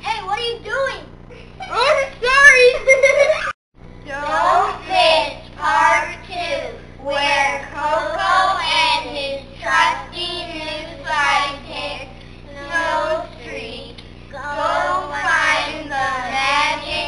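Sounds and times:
children singing together: 4.1s - 17.0s.

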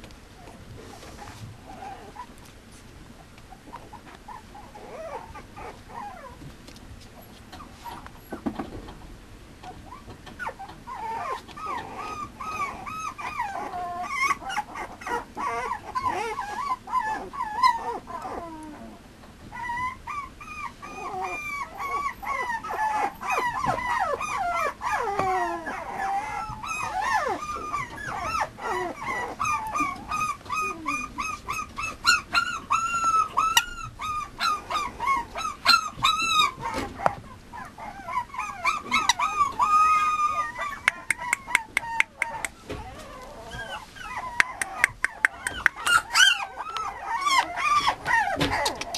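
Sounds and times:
puppy whining: 0.3s - 2.6s, 3.2s - 8.5s, 9.6s - 48.9s.

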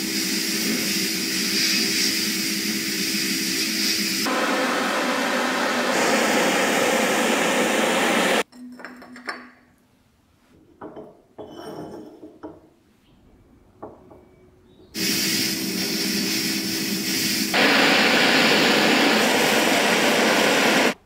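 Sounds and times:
propane torch hissing: 0.0s - 8.4s, 15.0s - 21.0s.

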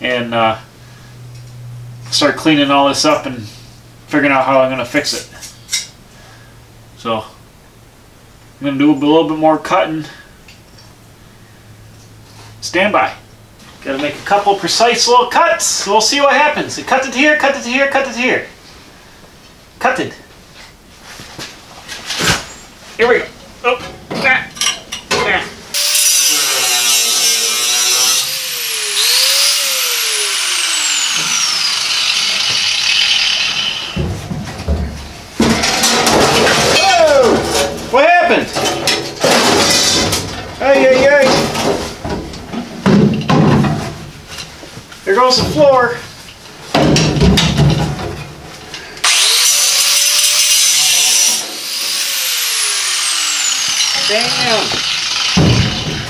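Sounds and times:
angle grinder cutting steel: 25.8s - 34.0s, 49.0s - 56.0s
metal rattling and scraping: 33.0s - 44.6s.

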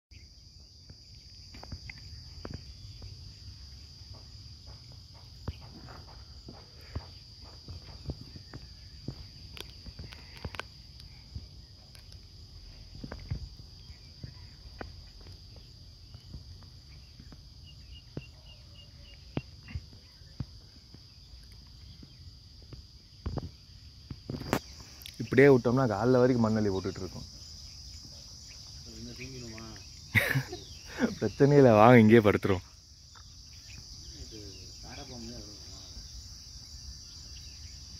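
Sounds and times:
insects chirring: 0.1s - 37.9s.

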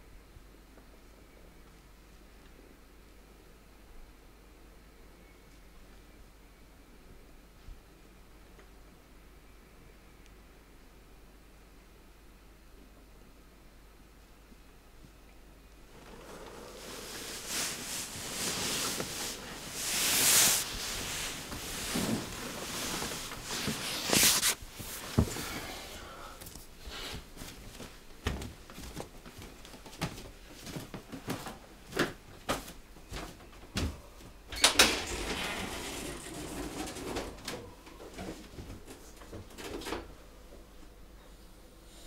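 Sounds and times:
footsteps: 16.0s - 25.7s, 26.5s - 34.4s.

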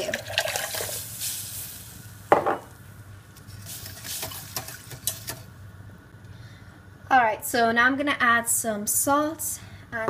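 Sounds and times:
roux sizzling and hissing: 0.0s - 2.3s, 3.4s - 5.5s
whisk clanking against pot: 3.8s - 5.4s.

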